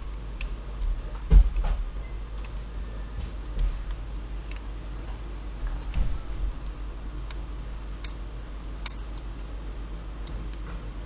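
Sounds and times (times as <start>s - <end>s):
steady low hum: 0.0s - 11.0s
clicks and handling of wires: 2.3s - 2.6s, 3.3s - 9.6s.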